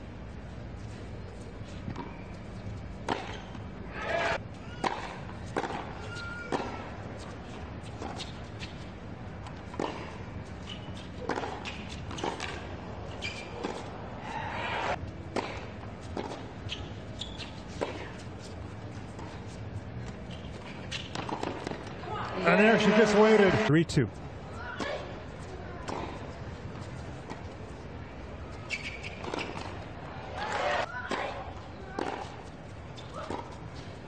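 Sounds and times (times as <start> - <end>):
tennis ball hits and bounces: 3.0 - 3.6, 4.8 - 7.3, 9.4 - 13.9, 15.3 - 16.5, 20.9 - 21.9, 25.8 - 26.2, 28.8 - 29.8, 30.4 - 32.4
crowd ambience: 21.8 - 34.0.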